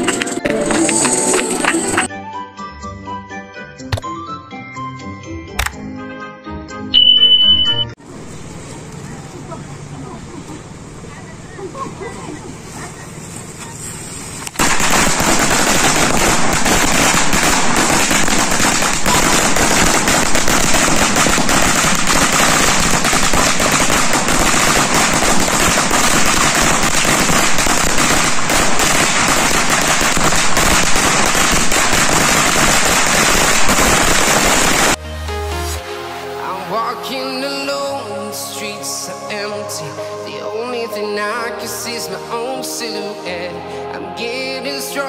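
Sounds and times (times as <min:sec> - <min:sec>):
firecrackers crackling: 0:00.0 - 0:02.1, 0:12.7 - 0:35.0.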